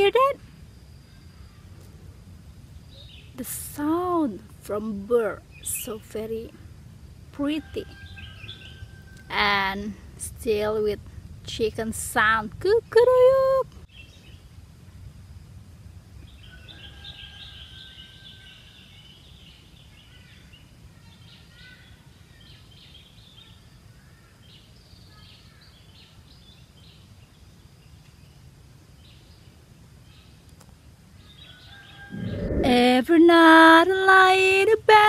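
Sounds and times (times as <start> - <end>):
faint low background rumble: 0.0 - 16.5, 32.0 - 35.0
birds calling and chirping: 7.7 - 9.6.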